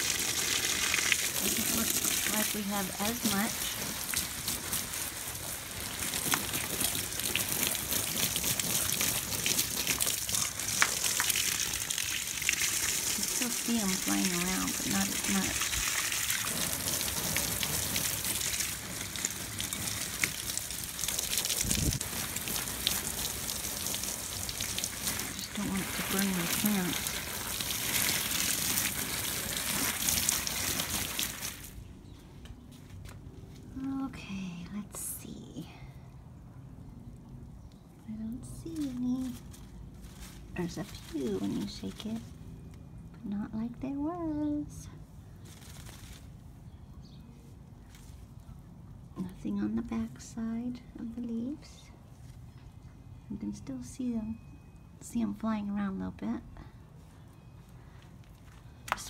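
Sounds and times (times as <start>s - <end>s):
water dripping: 0.0s - 31.8s
hose water splashing on plants: 0.0s - 31.9s, 38.4s - 42.4s, 45.4s - 46.6s, 58.2s - 59.0s.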